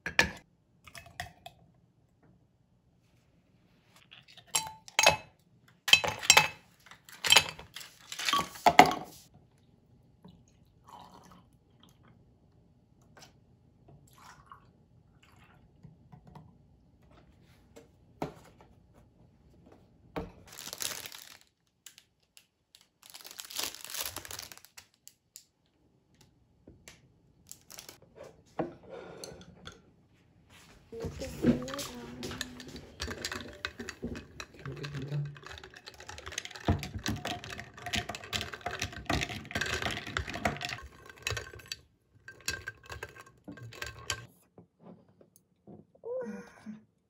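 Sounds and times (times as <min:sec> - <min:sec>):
milk pouring into glasses: 0:10.3 - 0:12.2, 0:14.0 - 0:15.8, 0:31.0 - 0:44.3.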